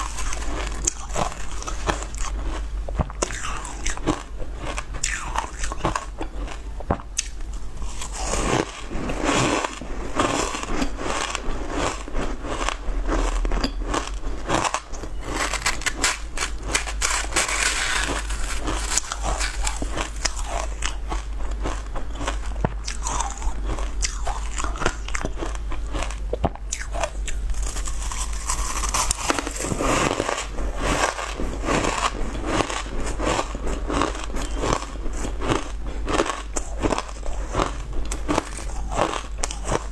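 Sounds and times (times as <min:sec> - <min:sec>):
crunching shaved ice: 0:00.0 - 0:39.9
metal spoon digging into ice: 0:15.3 - 0:19.9.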